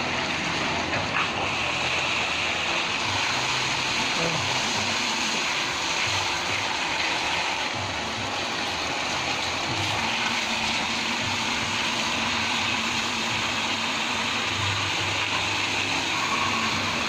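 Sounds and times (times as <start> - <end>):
water rushing and spraying from pipe: 0.0 - 17.0.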